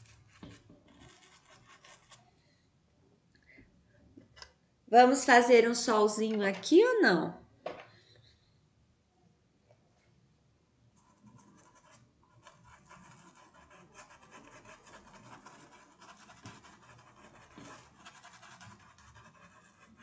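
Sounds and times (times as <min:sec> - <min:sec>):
paintbrush scratching fabric: 0:00.0 - 0:02.4, 0:11.0 - 0:20.0.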